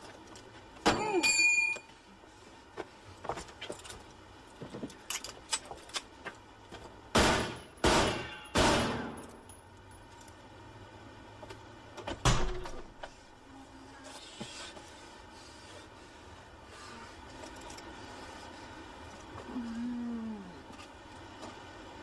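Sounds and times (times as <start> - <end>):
pistol shots ringing: 7.2 - 9.2.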